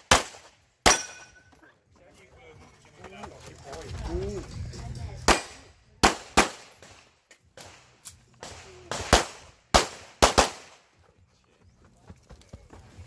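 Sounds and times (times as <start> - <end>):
handgun shots: 0.0 - 1.4.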